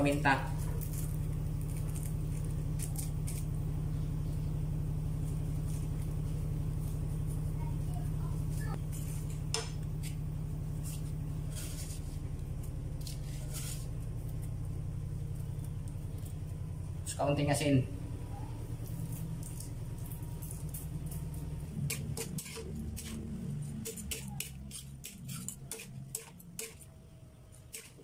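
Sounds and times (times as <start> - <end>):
steady low hum: 0.0 - 28.0
metal spatula scraping wok: 21.7 - 28.0.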